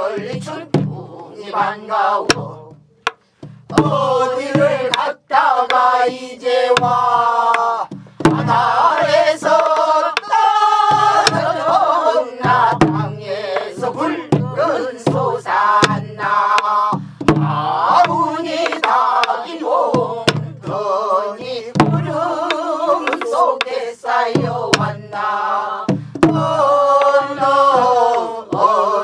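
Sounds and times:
men and women singing folk song: 0.0 - 29.0
barrel drum thumps: 0.2 - 1.3, 2.2 - 5.1, 6.7 - 23.7, 24.3 - 25.2, 25.8 - 28.8
drumstick clicks on drum: 4.9 - 5.1, 6.7 - 10.3, 18.0 - 19.4, 21.8 - 23.8.

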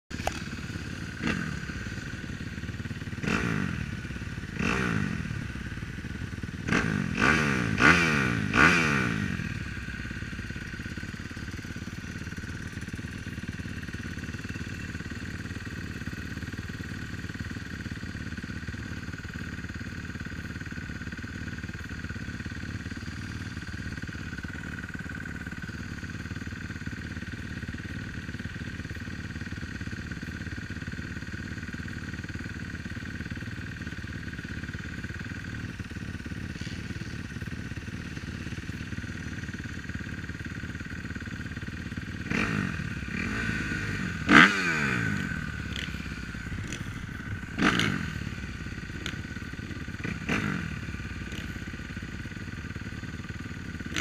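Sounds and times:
dirt bike engines idling: 0.1 - 54.0
engine throttle revs: 1.1 - 1.9, 3.0 - 9.6, 42.2 - 49.2, 50.0 - 51.5.

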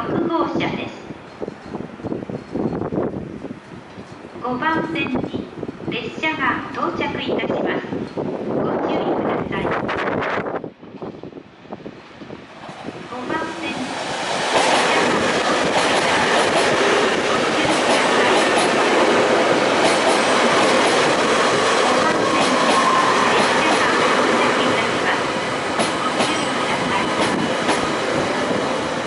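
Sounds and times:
train wheels rushing on rails: 1.2 - 4.4, 9.7 - 29.0.

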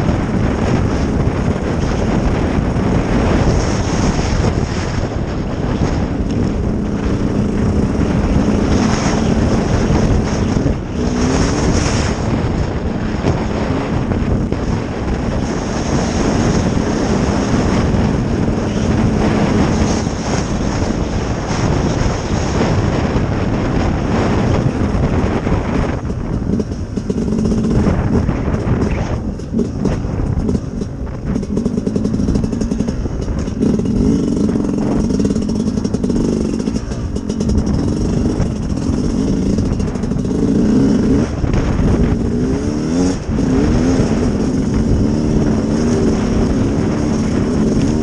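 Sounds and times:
motorcycle engine running: 0.0 - 48.0
wind across microphone: 0.0 - 48.0.

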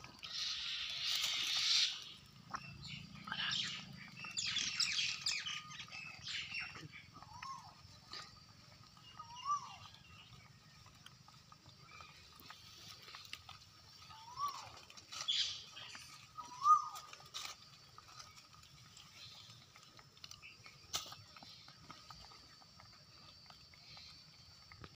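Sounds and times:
monkey squeaky calls: 14.1 - 15.7, 16.4 - 17.1.

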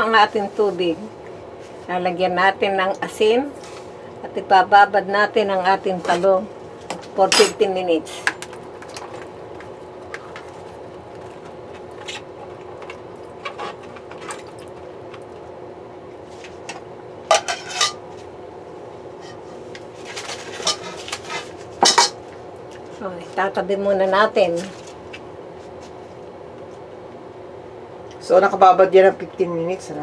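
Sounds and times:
steady hum: 0.0 - 30.0.

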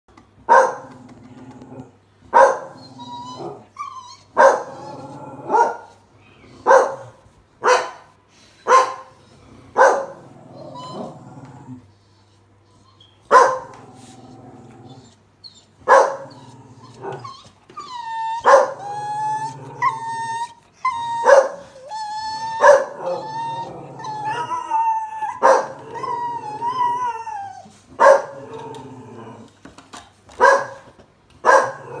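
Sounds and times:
dog barking: 0.5 - 0.9, 2.3 - 2.8, 4.4 - 4.7, 5.5 - 5.9, 6.6 - 8.1, 8.7 - 9.2, 9.8 - 10.2, 13.3 - 13.8, 15.9 - 16.3, 18.4 - 18.8, 21.2 - 21.7, 22.6 - 23.2, 25.4 - 25.8, 28.0 - 28.4, 30.4 - 31.8
dog howling and whining: 2.7 - 5.7, 10.3 - 13.3, 14.0 - 29.5.

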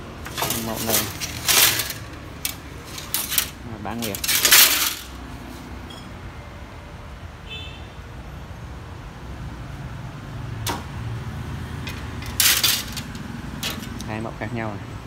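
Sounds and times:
handling noise: 0.0 - 5.6, 11.8 - 14.2
short clatter: 0.2 - 5.2, 11.9 - 14.1.

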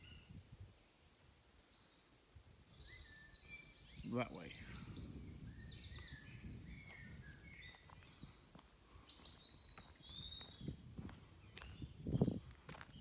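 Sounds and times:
soft footsteps on a lane: 5.9 - 13.0.

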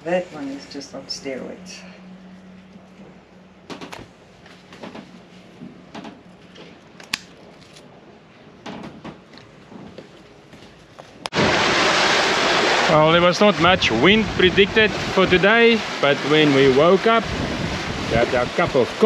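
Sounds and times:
wind and sea noise: 11.2 - 19.0.

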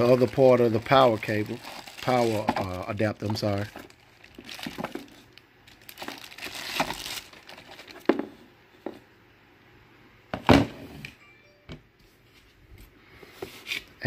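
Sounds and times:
plastic bag crinkling: 0.0 - 8.1.

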